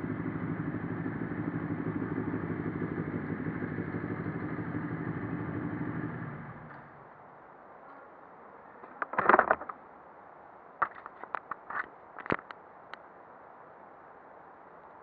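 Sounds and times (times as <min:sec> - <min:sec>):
handling noises: 0:08.8 - 0:09.8, 0:10.8 - 0:12.6
short rattling: 0:09.0 - 0:09.8.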